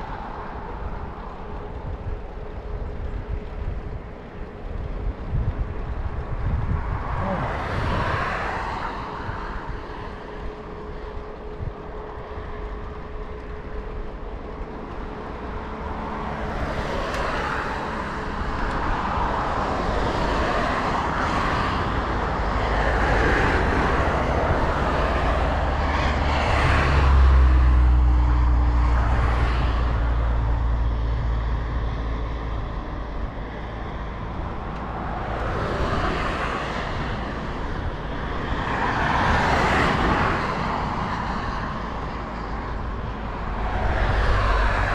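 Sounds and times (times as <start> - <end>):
road traffic passing: 0.0 - 44.9.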